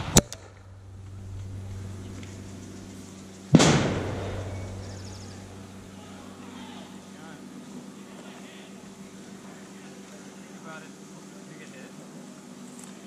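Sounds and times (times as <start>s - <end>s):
grenade bang: 0.0s - 6.4s
sharp crack: 0.0s - 6.4s.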